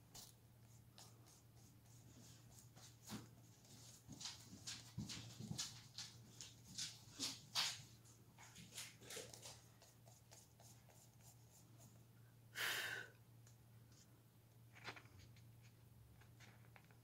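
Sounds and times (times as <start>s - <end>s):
sponge rubbing over plastic stencil: 0.0s - 4.0s, 9.8s - 12.0s.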